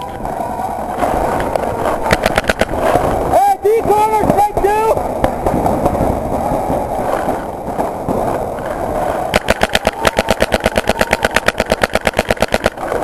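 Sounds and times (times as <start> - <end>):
paintball marker rapid firing: 2.0 - 3.1, 9.3 - 13.0.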